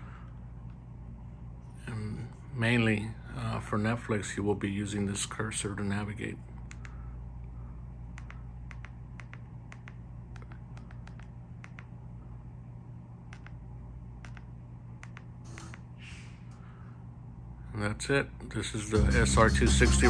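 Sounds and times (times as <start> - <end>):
steady low hum: 0.0 - 20.0
remote buttons clicking: 8.2 - 11.9, 13.3 - 13.6, 14.2 - 15.9.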